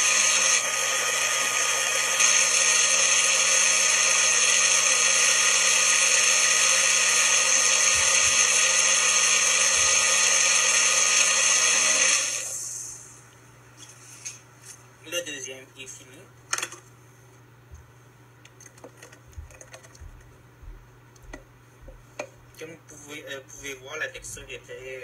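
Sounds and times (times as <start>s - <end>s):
blender motor running: 0.0s - 12.8s.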